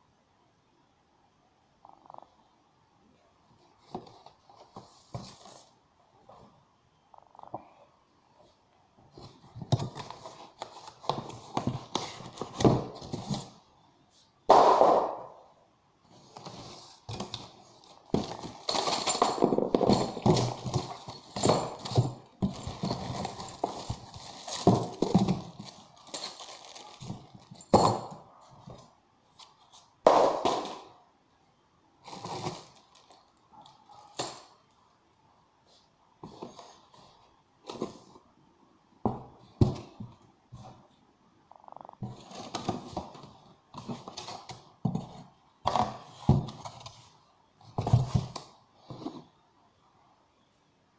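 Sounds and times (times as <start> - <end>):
cardboard and plastic wrap rustling: 9.1 - 13.7, 16.1 - 29.8, 32.0 - 33.3, 42.0 - 49.3.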